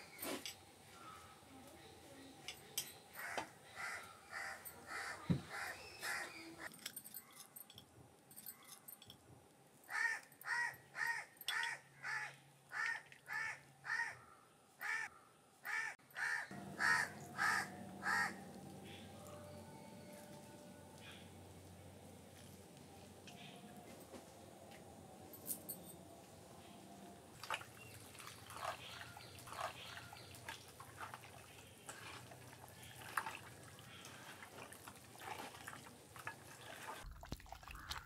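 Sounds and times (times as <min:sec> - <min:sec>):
crow cawing: 0:03.2 - 0:06.3, 0:09.9 - 0:18.4.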